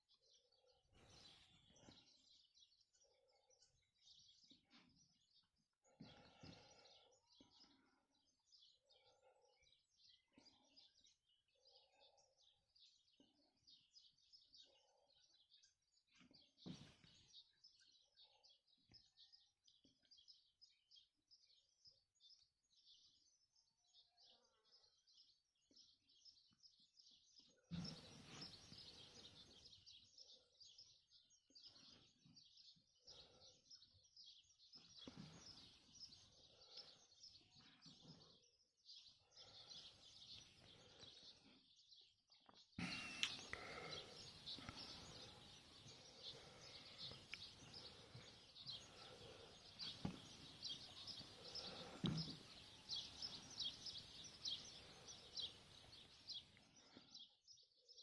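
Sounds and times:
small birds chirping: 0.0s - 58.0s
lower bird calls: 42.8s - 57.1s.

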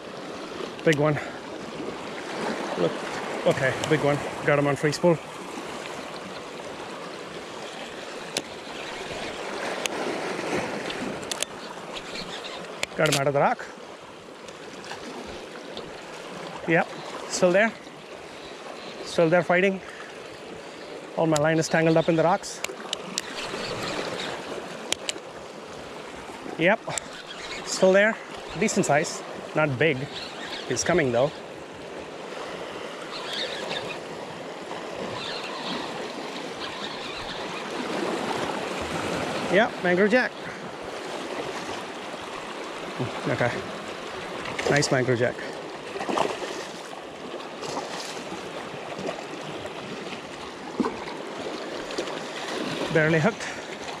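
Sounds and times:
sea water lapping against rocks: 0.0s - 4.5s, 5.2s - 17.4s, 19.8s - 39.6s, 40.4s - 54.0s
sharp clicks: 10.8s - 13.2s, 22.6s - 25.2s, 26.9s - 27.7s.

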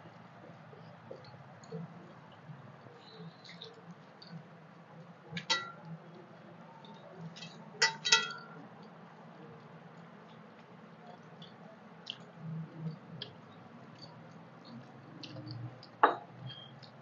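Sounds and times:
metal clinks on plates: 7.8s - 8.6s.

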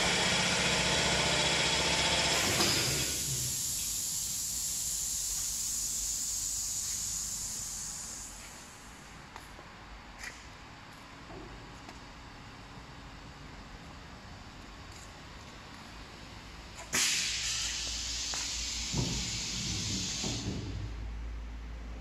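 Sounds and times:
machine mechanical hum: 0.0s - 22.0s
air hissing: 2.3s - 9.2s, 16.8s - 21.1s.

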